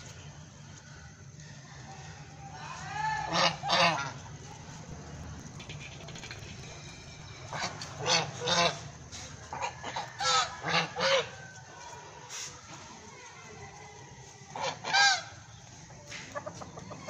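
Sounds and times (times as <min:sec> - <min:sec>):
geese honking: 0:01.9 - 0:12.4, 0:14.4 - 0:17.0.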